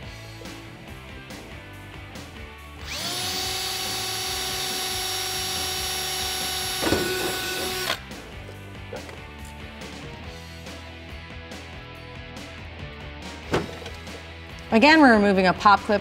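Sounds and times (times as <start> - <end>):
background music: 0.0 - 16.0
cordless drill whining: 2.8 - 8.1.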